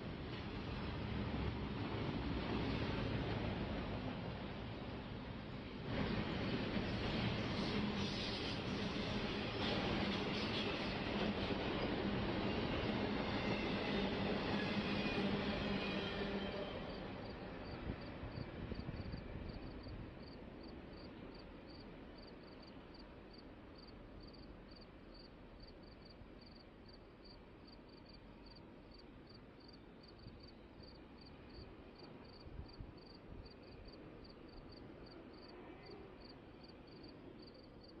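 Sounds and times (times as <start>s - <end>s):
freight train rumbling: 0.0s - 38.0s
crickets chirping: 14.6s - 38.0s.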